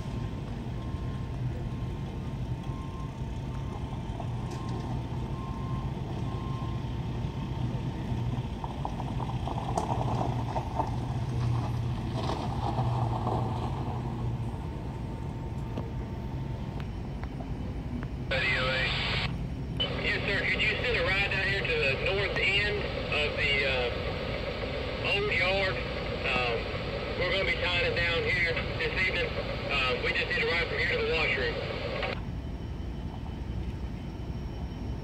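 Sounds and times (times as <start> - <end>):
low engine rumble: 0.0 - 35.0
faint broken beeping: 14.6 - 35.0.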